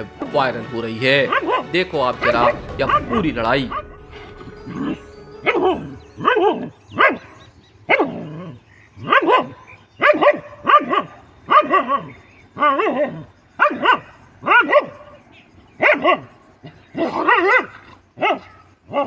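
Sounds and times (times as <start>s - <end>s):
dog barking: 9.0s - 15.2s, 15.8s - 19.0s.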